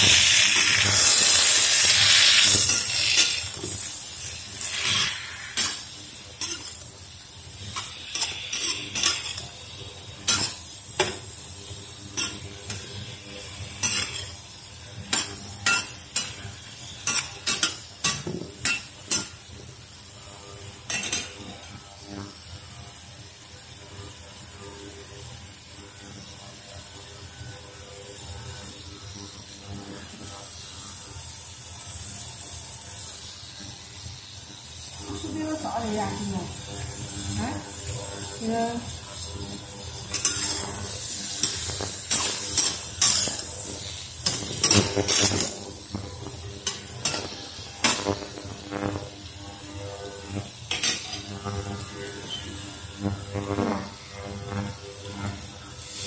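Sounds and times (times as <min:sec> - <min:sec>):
spatula scraping metal wok: 0:00.0 - 0:07.0, 0:07.6 - 0:09.5, 0:13.7 - 0:14.4, 0:40.1 - 0:45.6, 0:46.6 - 0:48.3
frying sizzle: 0:00.0 - 0:23.7, 0:30.4 - 0:49.7, 0:50.4 - 0:52.9, 0:53.8 - 0:56.0.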